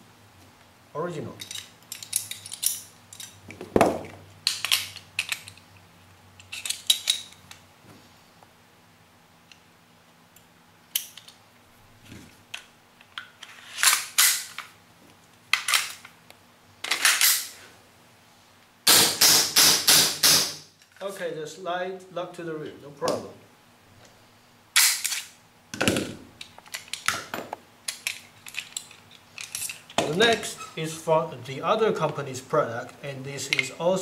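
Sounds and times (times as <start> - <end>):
pistol parts clicking: 1.4 - 3.4, 4.4 - 5.8, 6.4 - 7.6, 10.9 - 11.4, 24.8 - 25.3, 26.4 - 30.4.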